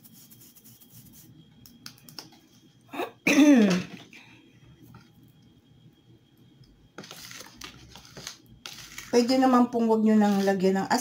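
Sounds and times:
fork stirring batter in bowl: 7.0s - 11.0s.

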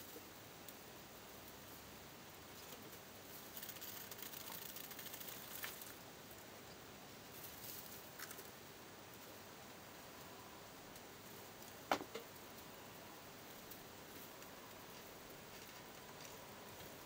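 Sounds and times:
mice rustling in dry hay: 2.5s - 6.4s, 7.2s - 9.4s, 13.3s - 17.0s
sharp ticks: 3.5s - 6.0s.

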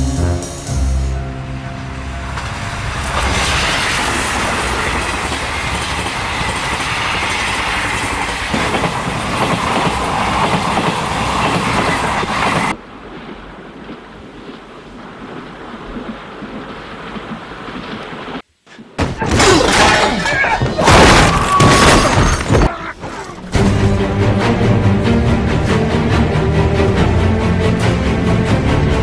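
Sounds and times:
low hum: 0.0s - 5.9s
passing train rushing noise: 0.6s - 12.8s
train wheels clattering over rail joints: 2.3s - 12.8s.

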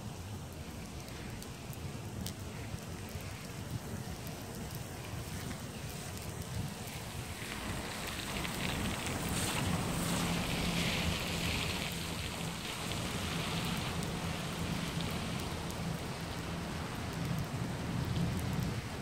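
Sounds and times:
rain on wet pavement: 0.0s - 19.0s.

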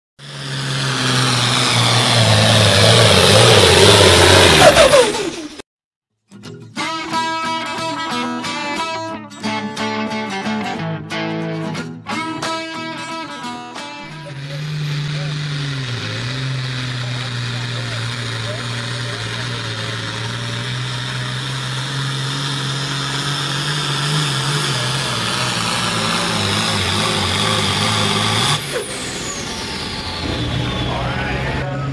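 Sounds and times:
loud engine roar: 0.2s - 5.6s, 13.8s - 31.9s
low hum falling in pitch: 0.2s - 5.6s, 14.0s - 31.9s.

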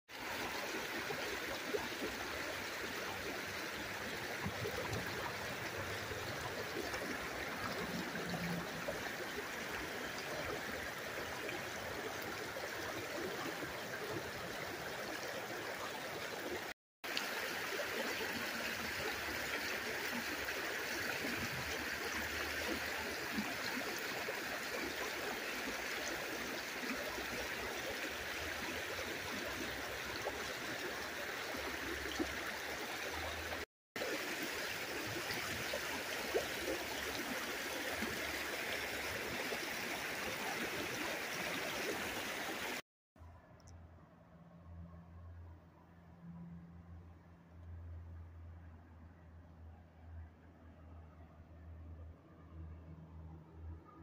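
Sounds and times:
river water babbling over rocks: 0.1s - 42.8s.

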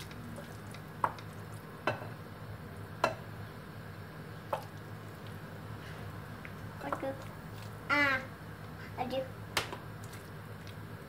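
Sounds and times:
hand squishing wet food: 0.0s - 1.8s, 4.4s - 7.9s, 9.5s - 11.0s
steady low hum: 0.0s - 11.0s.

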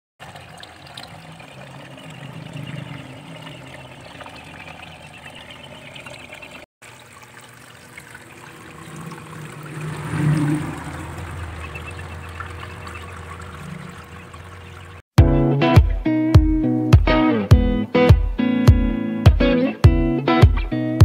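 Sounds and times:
low steady hum: 0.2s - 15.0s
rising bubbles: 0.2s - 15.0s
water trickling into fish tank: 0.2s - 15.1s.

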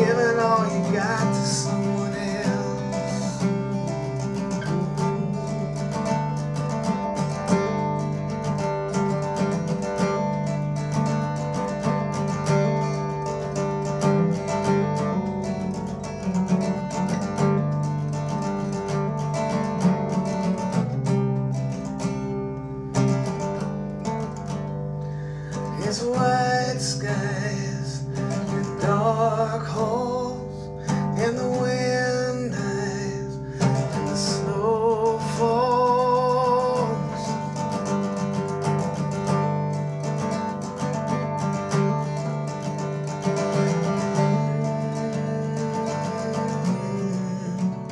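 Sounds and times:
man singing: 0.0s - 7.4s, 25.2s - 47.9s
acoustic guitar playing: 0.0s - 47.9s.

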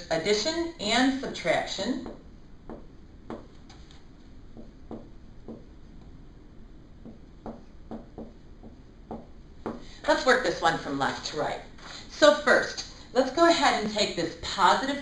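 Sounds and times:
marker writing on whiteboard: 1.3s - 6.2s, 7.0s - 10.8s.

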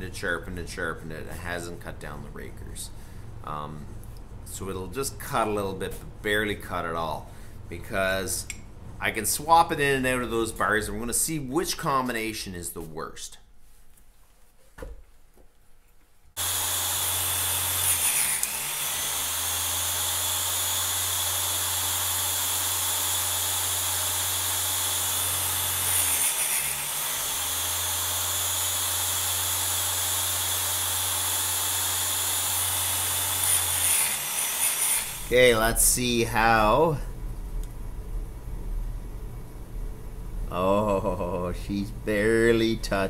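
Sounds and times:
chain sharpener grinding: 16.4s - 35.4s.

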